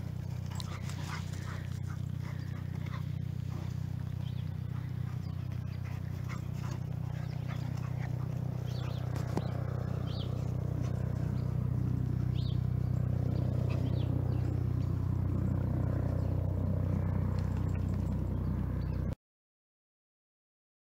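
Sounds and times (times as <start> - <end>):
steady low hum: 0.0 - 19.2
bird chirps: 0.5 - 11.6, 12.2 - 15.0.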